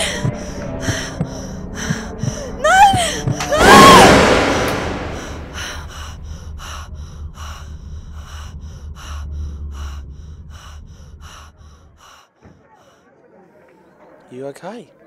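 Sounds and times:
woman panting: 0.0s - 3.5s, 5.0s - 13.1s
steady low hum: 0.0s - 12.1s.

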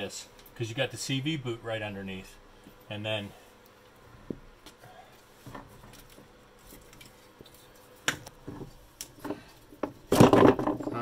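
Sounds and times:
metal parts clicking and knocking: 10.1s - 11.0s.

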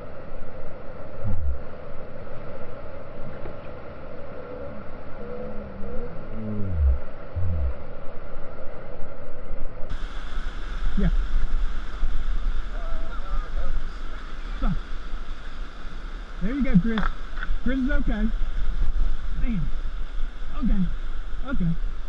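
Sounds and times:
low falling groans: 4.4s - 8.0s.

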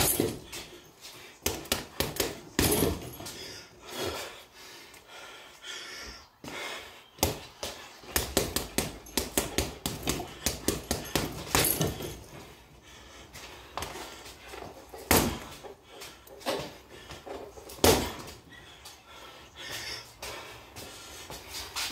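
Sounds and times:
punches thudding on punching bag: 0.0s - 0.5s, 1.4s - 3.1s, 8.1s - 12.2s, 15.0s - 15.6s, 17.7s - 18.3s.

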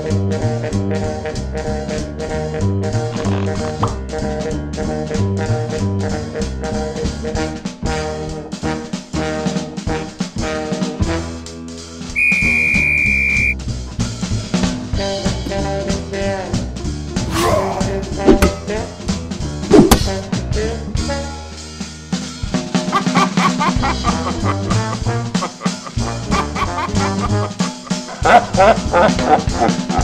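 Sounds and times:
jazzy cartoon music with brass: 0.0s - 30.0s
loud steady high tone: 12.2s - 13.6s.

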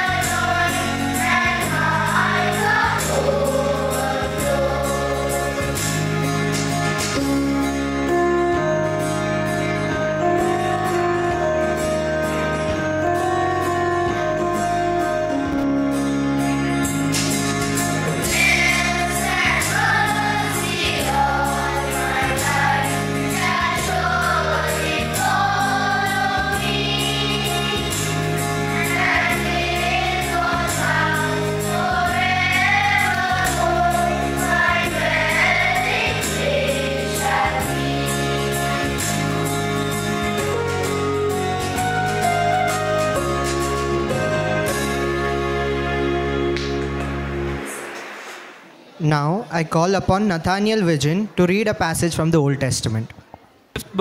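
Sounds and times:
church choir singing: 0.0s - 6.6s, 18.0s - 40.8s
instrumental accompaniment: 0.0s - 48.8s.

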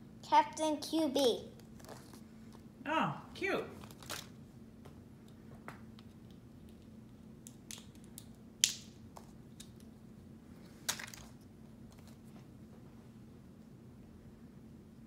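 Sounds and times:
low steady hum: 0.0s - 15.0s
wrapping crinkle: 1.6s - 2.7s, 3.8s - 4.4s.

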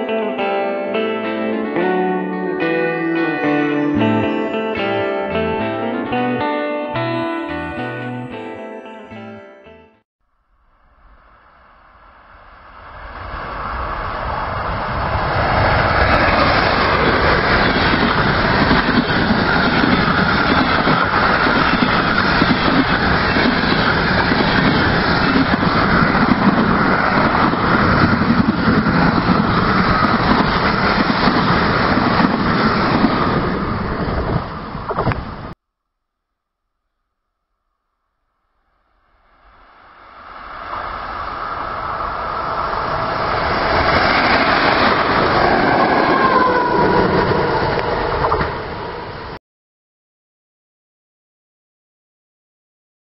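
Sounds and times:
train wheels rolling on rails: 12.2s - 35.6s, 39.7s - 49.4s.

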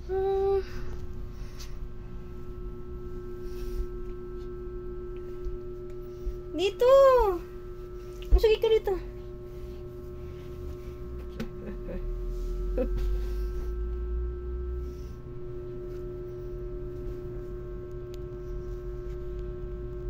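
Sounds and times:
low rumbling: 0.0s - 20.0s
steady hum: 0.0s - 20.0s.

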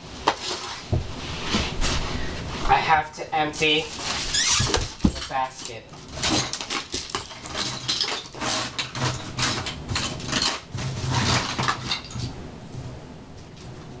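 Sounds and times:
rummaging in a wicker basket: 3.5s - 12.3s
objects clattering on floor: 4.0s - 12.3s.

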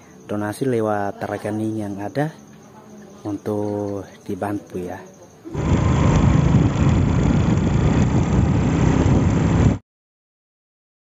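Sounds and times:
vehicle driving on road: 5.5s - 9.8s.

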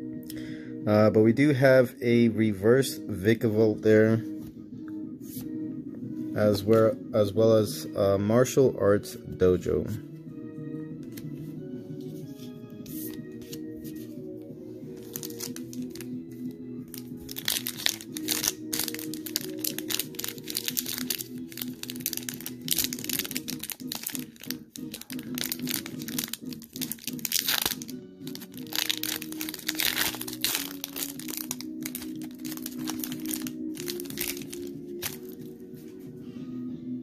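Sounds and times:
background music: 0.0s - 37.0s
foil wrappers crinkling: 15.0s - 16.1s, 16.9s - 35.5s.

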